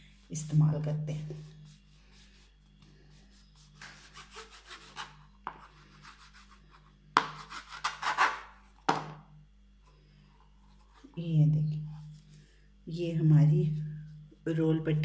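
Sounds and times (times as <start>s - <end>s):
knife rasping through pastry sheets: 3.1s - 8.5s.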